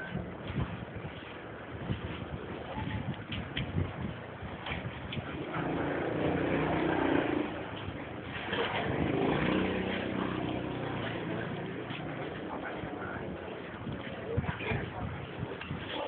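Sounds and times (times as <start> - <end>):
vehicle engine running: 5.3 - 13.9.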